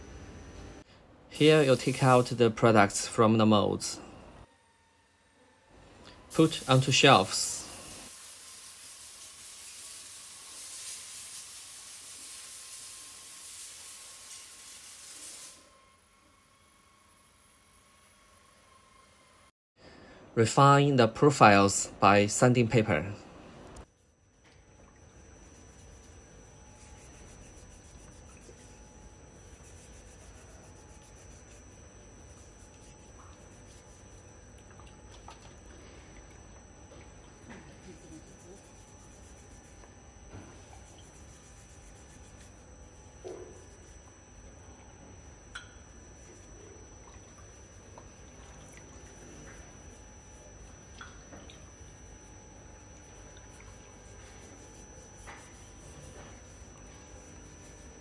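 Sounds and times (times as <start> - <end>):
faint steady whine: 0.0 - 58.0
steady high hiss: 1.3 - 2.9, 6.3 - 15.6
sandpaper rubbing and scraping: 29.5 - 31.6.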